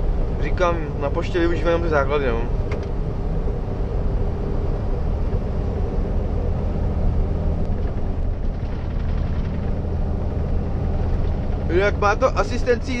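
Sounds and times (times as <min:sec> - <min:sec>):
diesel truck engine running: 0:00.0 - 0:13.0
road noise: 0:00.0 - 0:13.0.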